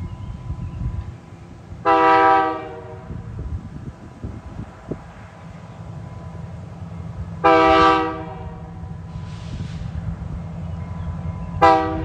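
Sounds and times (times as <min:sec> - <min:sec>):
locomotive rumble: 0:00.0 - 0:12.0
locomotive air horn blast: 0:01.8 - 0:03.3, 0:07.4 - 0:10.0, 0:11.6 - 0:12.0.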